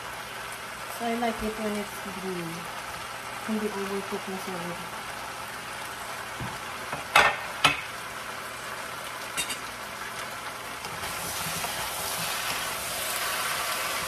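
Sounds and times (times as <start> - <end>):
food sizzling in frying pan: 0.0 - 14.0
wooden spatula turning food: 10.2 - 14.0.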